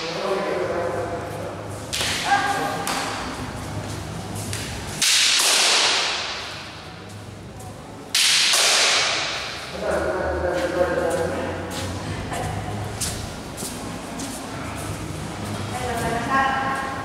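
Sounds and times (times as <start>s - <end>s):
bamboo swords striking: 5.0s - 6.8s, 8.1s - 9.6s.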